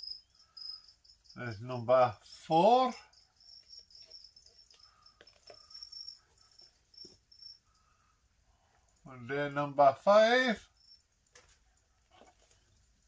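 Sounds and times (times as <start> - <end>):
cricket chirping: 0.0 - 13.0
plastic cups tapping: 4.6 - 5.8.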